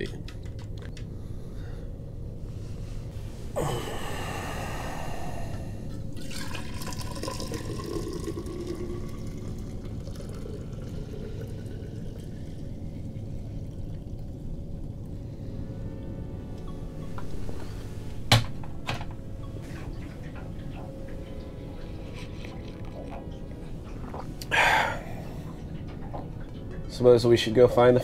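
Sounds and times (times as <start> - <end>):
coffee pouring into a bottle: 6.2 - 14.4.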